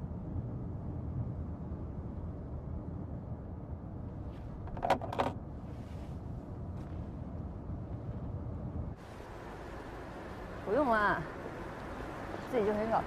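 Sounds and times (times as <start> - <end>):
car cabin rumble: 4.0 - 12.3.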